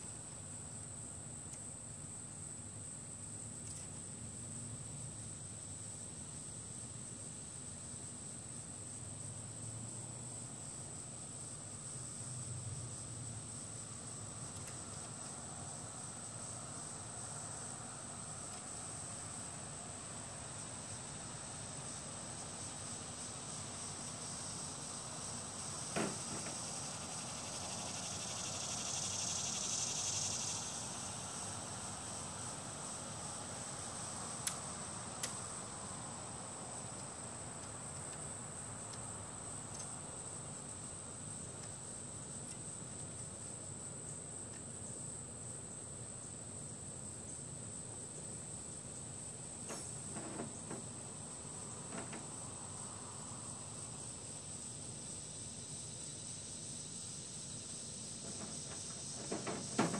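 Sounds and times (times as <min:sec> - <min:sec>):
insect chorus: 0:00.0 - 0:59.9.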